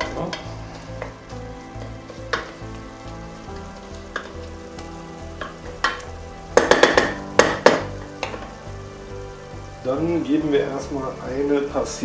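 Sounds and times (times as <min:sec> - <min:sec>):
wooden spatula scraping a pot: 0:00.0 - 0:04.8
meat sizzling in a pot: 0:00.0 - 0:12.0.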